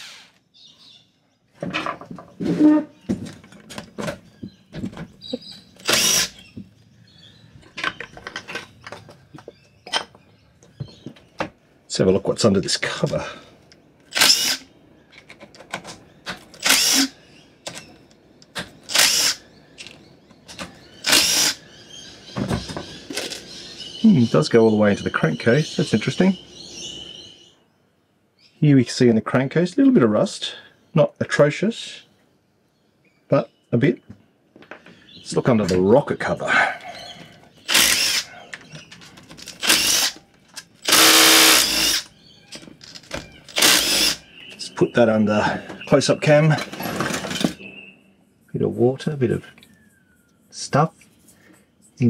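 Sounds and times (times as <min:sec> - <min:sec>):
impact driver bursts: 0:05.8 - 0:06.4, 0:14.1 - 0:14.7, 0:16.6 - 0:17.1, 0:18.9 - 0:19.4, 0:21.0 - 0:21.6, 0:37.7 - 0:38.3, 0:39.6 - 0:40.2, 0:40.8 - 0:42.1, 0:43.5 - 0:44.2
impact driver undoing bolts: 0:05.8 - 0:06.4, 0:14.1 - 0:14.6, 0:15.2 - 0:21.6, 0:37.7 - 0:44.2, 0:46.6 - 0:47.6.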